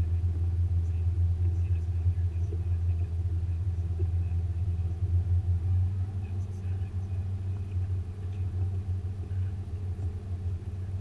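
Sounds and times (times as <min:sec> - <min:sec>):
boat engine droning: 0:00.0 - 0:11.0.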